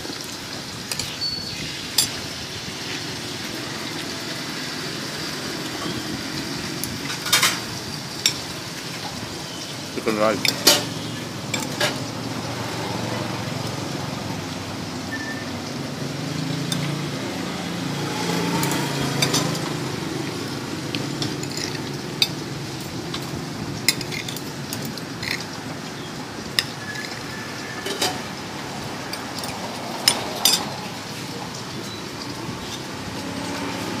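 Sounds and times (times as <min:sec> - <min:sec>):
cutlery clinking on a china plate: 0:10.4 - 0:10.9, 0:11.5 - 0:12.0, 0:18.6 - 0:19.6, 0:21.2 - 0:22.4, 0:23.9 - 0:25.4, 0:27.8 - 0:28.2, 0:29.1 - 0:30.7.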